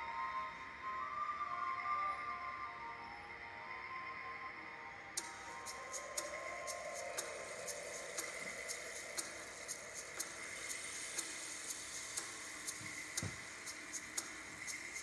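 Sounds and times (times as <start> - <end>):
music with ticking beat: 5.2 - 15.0.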